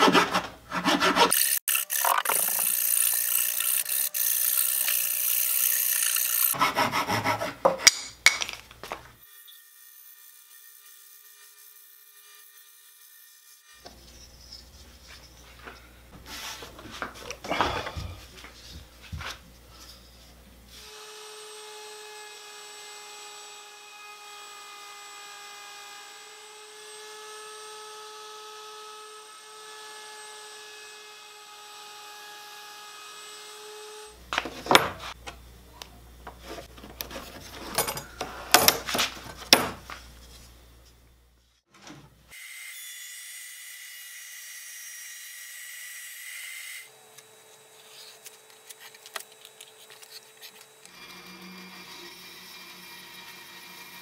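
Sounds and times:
block sanding wood by hand: 0:00.0 - 0:01.4, 0:06.4 - 0:07.9
power tool motor running: 0:01.1 - 0:06.6, 0:49.4 - 0:54.0.

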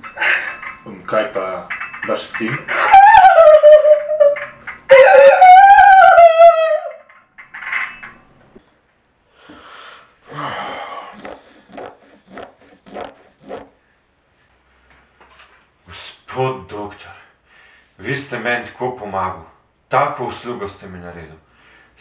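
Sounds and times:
woman wailing: 0:02.7 - 0:07.0.

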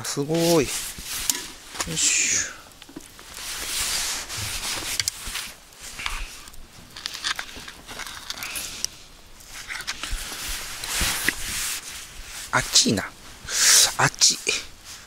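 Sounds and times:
jacket sleeve rustling: 0:03.2 - 0:05.6.

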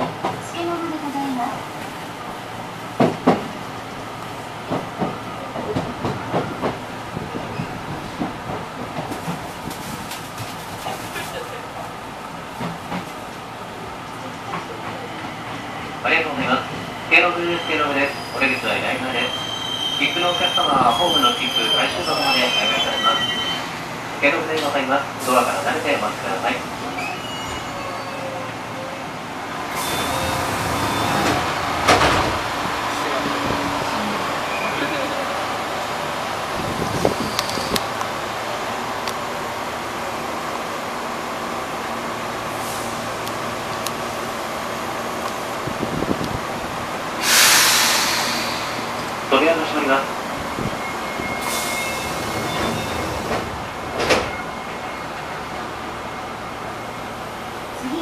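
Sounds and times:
train doors thumping shut: 0:03.0 - 0:03.6, 0:04.6 - 0:10.9, 0:29.7 - 0:33.7, 0:50.6 - 0:55.4
train cab hum: 0:27.8 - 0:58.0
sliding doors clunk shut: 0:29.9 - 0:32.6, 0:51.5 - 0:54.5
air hiss of train doors: 0:42.4 - 0:43.4, 0:47.1 - 0:49.2, 0:51.4 - 0:54.3.

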